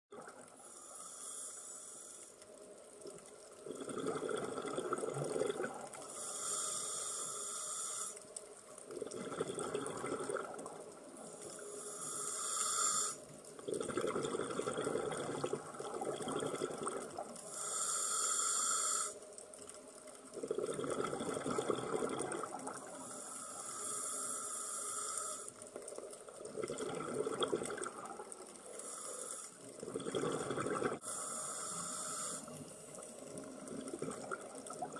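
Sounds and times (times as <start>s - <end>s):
regulator hissing inhale: 0.6s - 2.4s, 6.0s - 8.4s, 11.2s - 13.3s, 17.4s - 19.3s, 23.0s - 25.6s, 28.7s - 29.7s, 31.0s - 33.2s
bubbling exhaled air: 3.6s - 8.2s, 8.9s - 10.8s, 11.8s - 19.2s, 20.3s - 25.5s, 26.3s - 34.9s.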